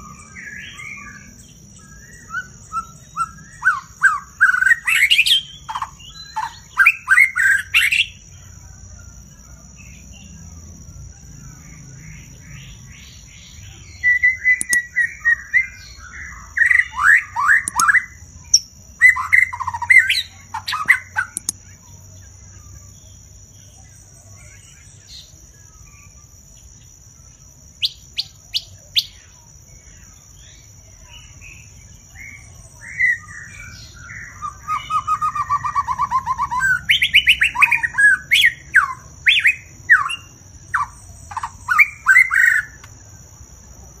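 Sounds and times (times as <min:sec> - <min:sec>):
bird singing whistles: 0:13.8 - 0:21.6.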